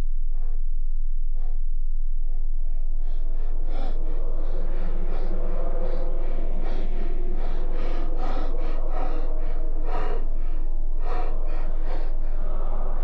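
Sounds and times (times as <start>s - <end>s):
steady low hum: 0.0s - 13.0s
person breathing heavily with gasps: 2.8s - 13.0s.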